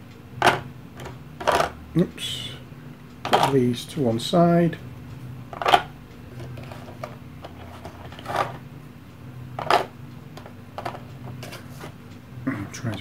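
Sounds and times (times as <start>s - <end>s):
faint steady hum: 0.0s - 13.0s
soft plastic handling noises: 3.3s - 3.6s, 5.6s - 8.6s.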